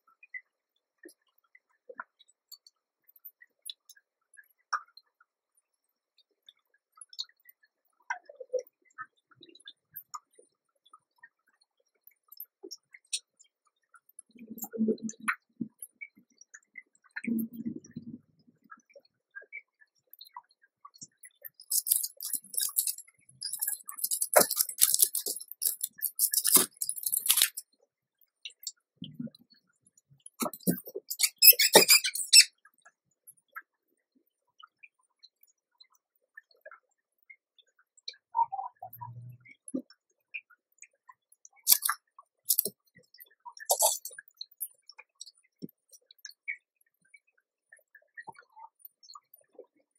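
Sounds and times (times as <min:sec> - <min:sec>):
faint clicks and ticks: 0:00.0 - 0:49.9.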